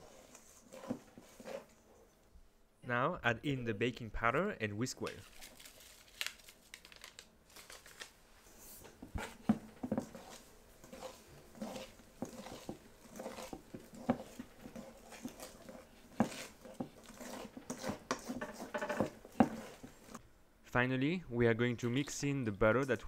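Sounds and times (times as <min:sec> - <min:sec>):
whisk beating batter in bowl: 0:00.0 - 0:01.7, 0:09.2 - 0:20.2.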